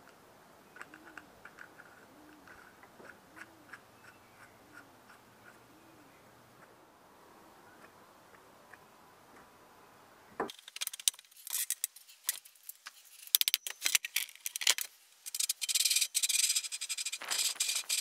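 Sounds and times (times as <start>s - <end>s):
metal parts rubbing and scraping: 10.5s - 18.0s.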